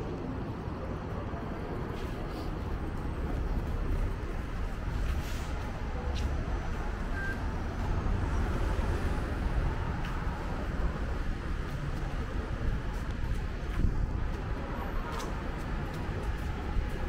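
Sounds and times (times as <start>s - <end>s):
city road traffic rumble: 0.0s - 17.0s.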